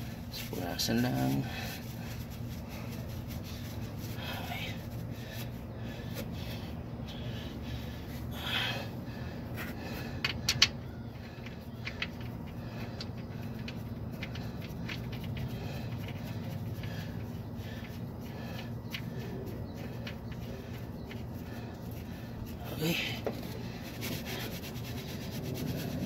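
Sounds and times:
steady low hum: 0.0s - 26.0s
clicks and scrapes of parts: 9.6s - 17.2s.

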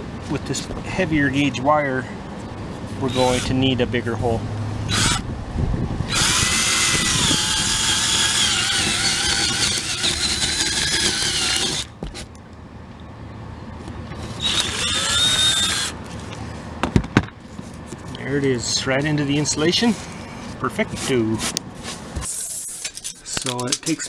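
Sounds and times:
cordless drill boring through wood: 3.0s - 3.6s, 4.9s - 5.2s, 6.1s - 11.9s, 14.4s - 16.0s.

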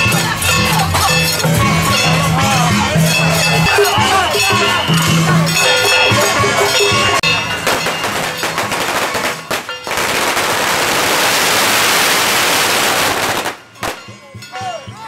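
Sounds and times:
firecrackers crackling: 7.3s - 14.2s.

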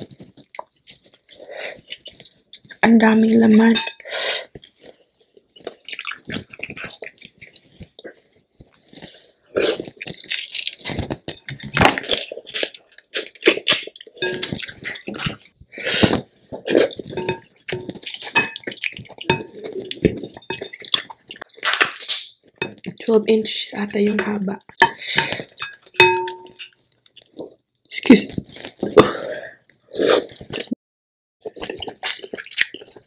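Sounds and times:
wet chewing and lip smacks: 0.0s - 2.8s, 4.5s - 15.5s, 16.2s - 23.0s, 31.4s - 33.0s.

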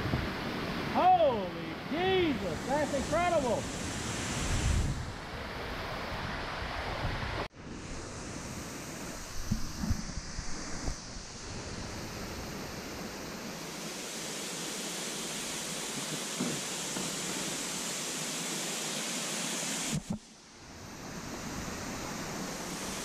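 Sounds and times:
waterfall rushing over rocks: 0.1s - 4.6s, 11.4s - 23.0s.

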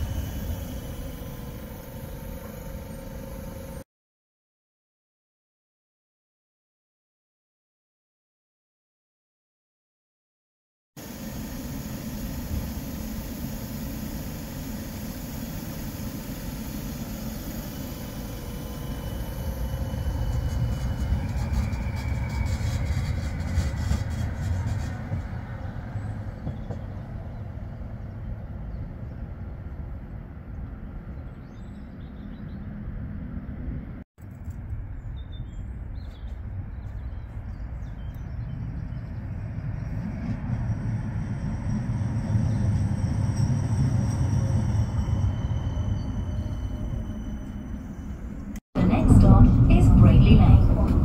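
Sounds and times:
motor whine: 0.0s - 3.8s, 11.0s - 23.4s
tram rumbling on rails: 0.0s - 3.8s, 11.0s - 51.0s.

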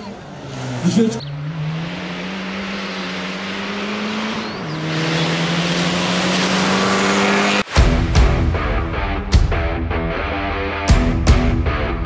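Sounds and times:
rally car engine at full throttle: 0.0s - 12.0s
rock music: 6.7s - 12.0s.

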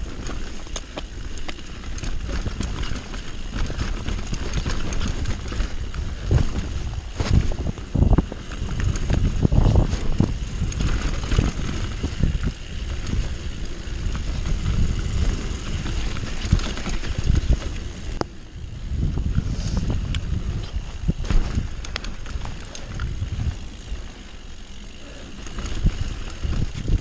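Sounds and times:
bike rattling over bumps: 0.0s - 27.0s
bike tyres on dirt: 0.0s - 27.0s
wind buffeting microphone: 1.8s - 27.0s.

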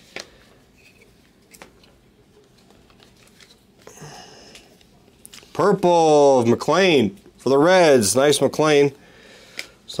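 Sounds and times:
trading cards being handled: 0.0s - 6.0s.

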